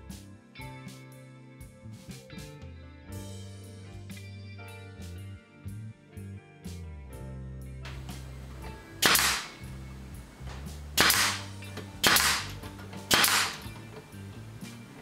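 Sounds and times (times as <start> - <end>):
pin nailer firing: 7.9 - 14.1.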